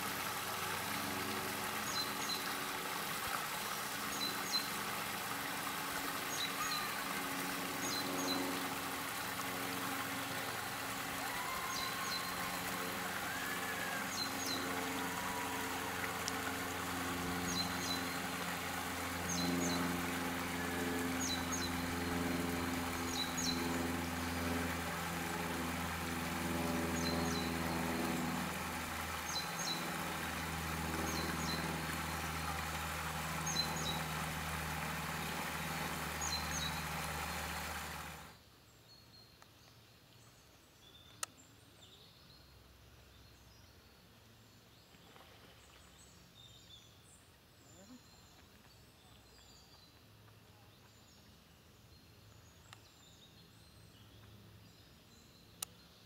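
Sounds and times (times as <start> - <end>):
stream splashing over cascade: 0.0 - 38.4
low hum: 7.7 - 38.4.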